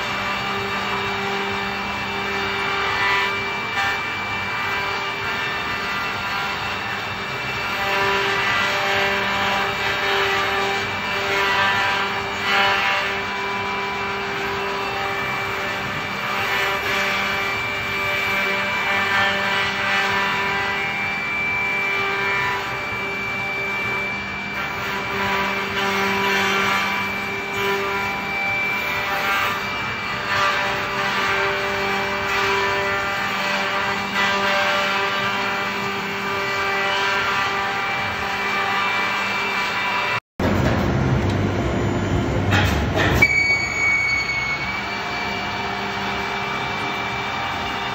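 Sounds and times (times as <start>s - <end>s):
cutters routing wood: 0.0s - 40.6s, 44.5s - 47.9s
machine hum: 35.2s - 47.9s.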